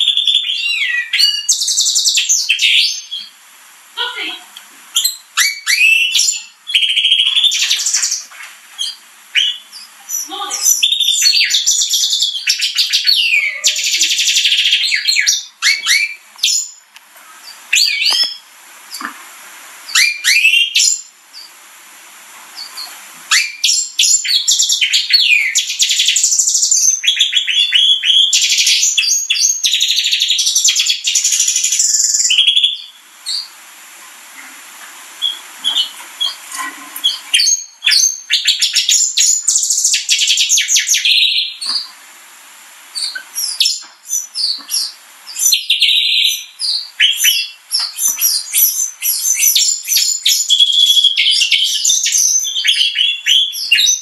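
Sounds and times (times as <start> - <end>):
canary singing: 0.0 - 3.4, 4.0 - 19.0, 19.8 - 21.6, 22.6 - 33.6, 35.2 - 42.0, 42.9 - 54.0.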